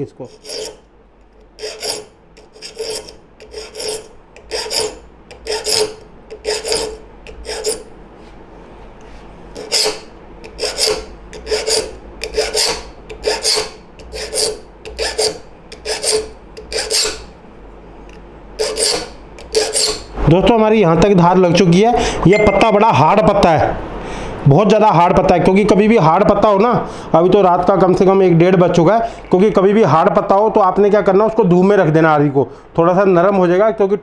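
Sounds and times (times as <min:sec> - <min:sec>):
file rasping on saw teeth: 0:00.2 - 0:00.8, 0:01.6 - 0:07.9, 0:09.5 - 0:17.3, 0:18.6 - 0:20.1.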